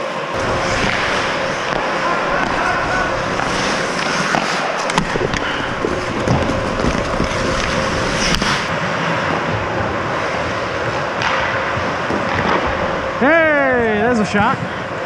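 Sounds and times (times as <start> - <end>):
hockey sticks and puck clacking: 0.4 - 8.7, 11.1 - 12.8
skate blades scraping ice: 0.4 - 12.8.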